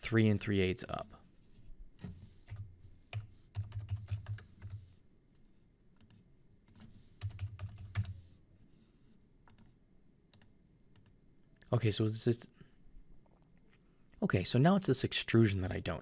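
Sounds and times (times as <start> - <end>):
typing on computer keyboard: 2.0 - 4.8, 6.0 - 8.2.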